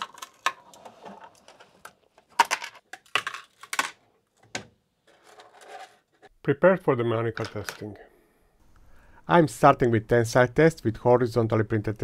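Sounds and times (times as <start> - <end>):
plastic parts clicking and clacking: 0.0 - 6.3.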